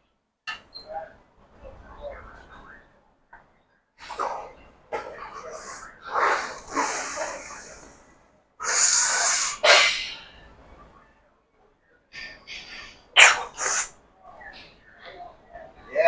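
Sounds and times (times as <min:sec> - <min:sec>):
sharp forceful breaths: 0:08.6 - 0:10.5.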